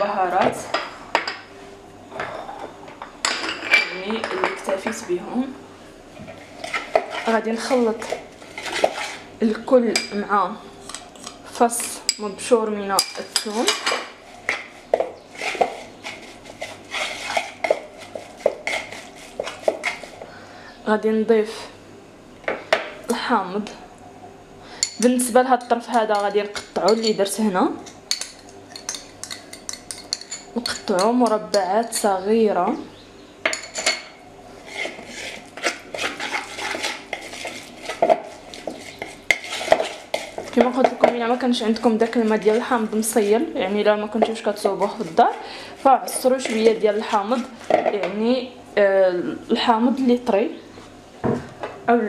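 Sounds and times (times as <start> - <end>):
spoon scraping plastic bowl: 6.3 - 9.3, 14.4 - 20.2, 34.6 - 48.1.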